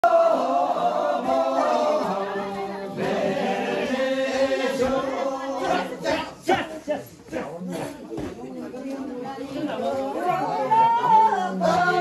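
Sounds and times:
group of voices chanting in unison: 0:00.0 - 0:07.0, 0:10.2 - 0:12.0.

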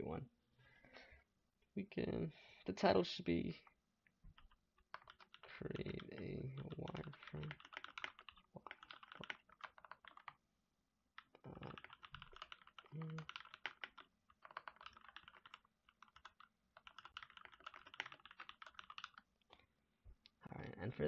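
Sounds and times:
keyboard typing: 0:04.3 - 0:10.4, 0:11.2 - 0:19.3.

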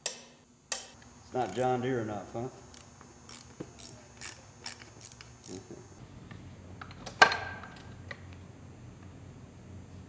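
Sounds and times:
ratchet wrench clicking: 0:00.7 - 0:01.8, 0:02.7 - 0:05.7.

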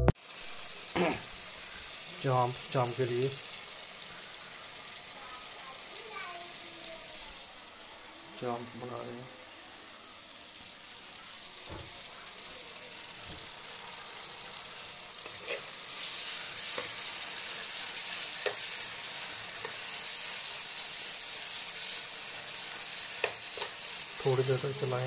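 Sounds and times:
food sizzling in oil: 0:00.1 - 0:25.0
spatula scraping and knocking pan: 0:15.2 - 0:20.2.

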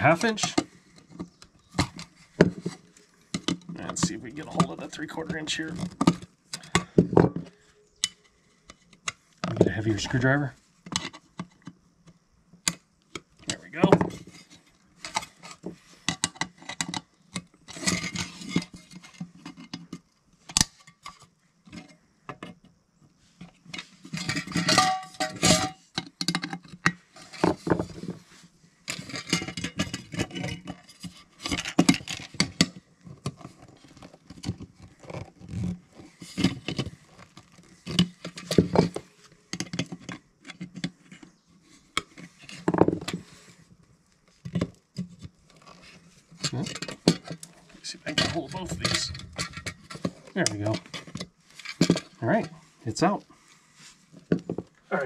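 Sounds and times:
metal clinks taps and scraping: 0:23.4 - 0:28.2, 0:28.9 - 0:43.4, 0:44.5 - 0:52.8.

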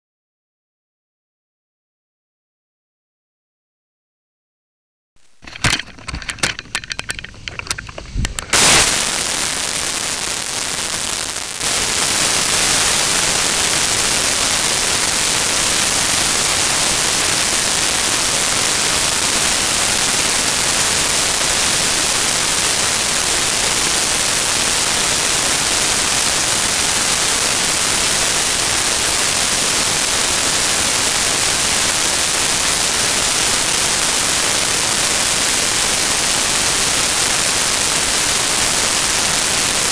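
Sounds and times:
clicks and knocks: 0:05.4 - 0:08.6.

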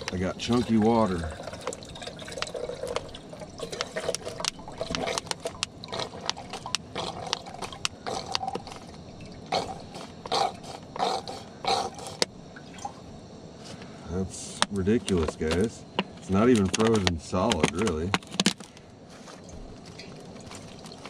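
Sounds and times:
slushy water pouring: 0:00.0 - 0:11.1, 0:19.4 - 0:21.0
water glugging: 0:00.0 - 0:13.1.

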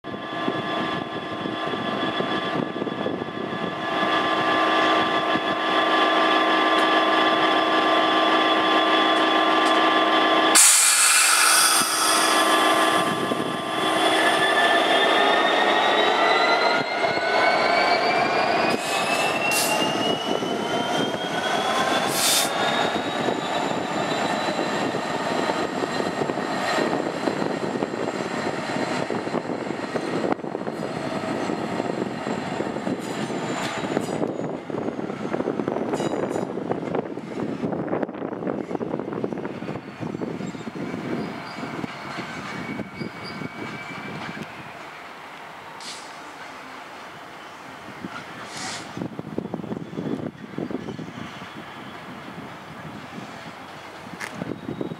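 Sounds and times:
diesel locomotive engine: 0:00.0 - 0:54.9
loud hiss: 0:10.6 - 0:13.1.

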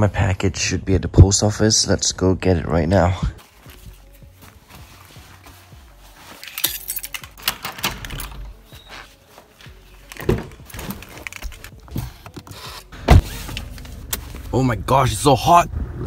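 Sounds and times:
rustling handling noise: 0:03.4 - 0:07.4, 0:08.5 - 0:12.4.

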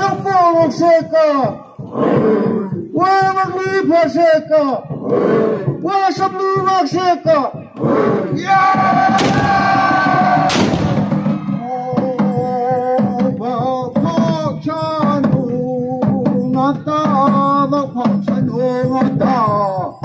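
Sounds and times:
men chanting: 0:00.0 - 0:20.0
sharp cracks: 0:09.2 - 0:09.8, 0:10.5 - 0:11.2.

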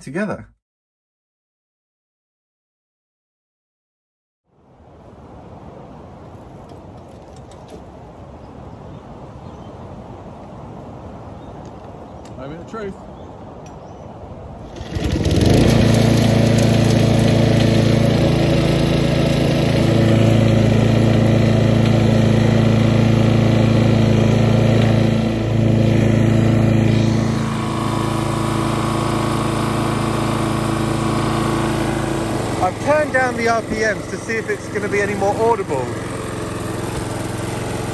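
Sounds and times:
lawn mower engine running: 0:14.6 - 0:37.9.

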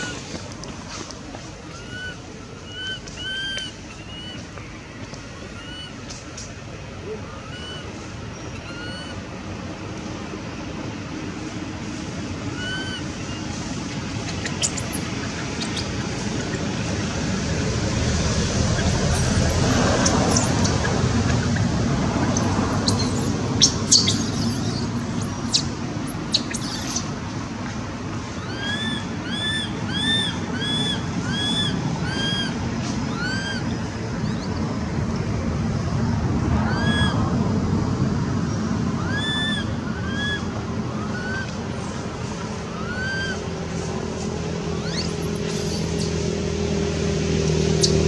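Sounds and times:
baby monkey high-pitched calls: 0:00.0 - 0:00.2, 0:01.7 - 0:04.5, 0:05.5 - 0:06.0, 0:07.2 - 0:09.2, 0:12.5 - 0:13.5, 0:14.2 - 0:16.6, 0:18.6 - 0:21.7, 0:22.3 - 0:27.1, 0:28.4 - 0:34.6, 0:36.6 - 0:37.2, 0:39.0 - 0:42.0, 0:42.7 - 0:43.5, 0:44.8 - 0:46.2, 0:47.5 - 0:48.0
steady low rumble: 0:00.0 - 0:48.0
small bird chirping: 0:14.2 - 0:16.7, 0:18.7 - 0:21.7, 0:22.3 - 0:27.1, 0:44.8 - 0:46.2, 0:47.5 - 0:48.0.

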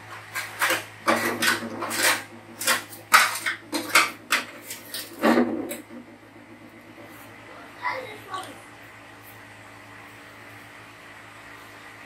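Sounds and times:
metal spoon scraping a steel pot: 0:00.4 - 0:05.0.

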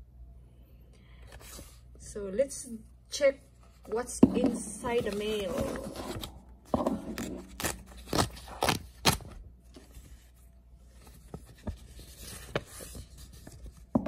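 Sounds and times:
paper rustling and scraping: 0:04.9 - 0:13.9.

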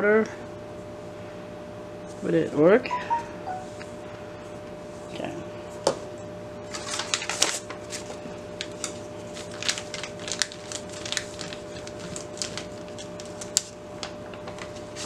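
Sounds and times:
paper crackling and rustling: 0:06.6 - 0:15.0.

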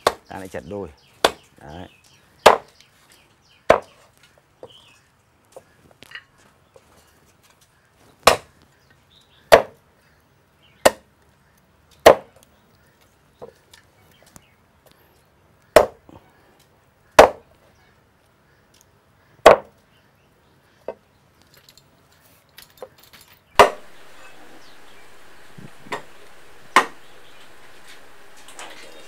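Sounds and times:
cleaver chopping on wooden block: 0:01.2 - 0:01.5, 0:02.4 - 0:02.7, 0:03.7 - 0:03.9, 0:08.2 - 0:08.5, 0:09.5 - 0:09.8, 0:10.8 - 0:11.0, 0:12.0 - 0:12.3, 0:15.8 - 0:16.0, 0:17.2 - 0:17.4, 0:19.4 - 0:19.7, 0:23.6 - 0:24.0, 0:25.9 - 0:27.1.

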